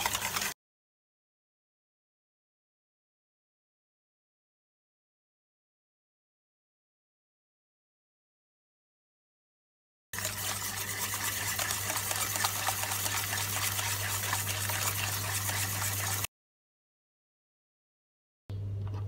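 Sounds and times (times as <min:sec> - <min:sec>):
whisk rattling in metal bowl: 0:00.0 - 0:00.6, 0:10.2 - 0:16.3.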